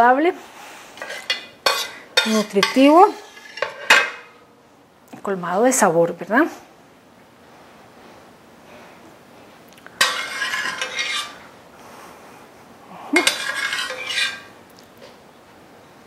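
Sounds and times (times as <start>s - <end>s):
metal spoon scraping cookware: 1.0s - 4.3s, 10.0s - 11.4s, 13.2s - 14.5s.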